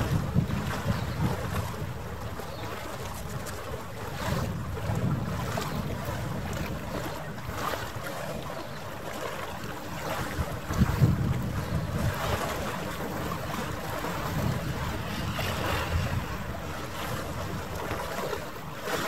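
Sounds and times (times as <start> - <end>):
lapping water: 0.0 - 19.0
wind gusting on microphone: 0.0 - 19.0
low rumble: 13.7 - 18.0.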